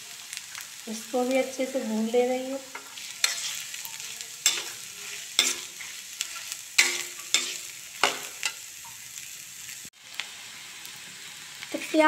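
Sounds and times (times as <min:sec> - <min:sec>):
onions sizzling in oil: 0:00.0 - 0:12.0
spatula scraping and clinking pan: 0:02.7 - 0:08.7.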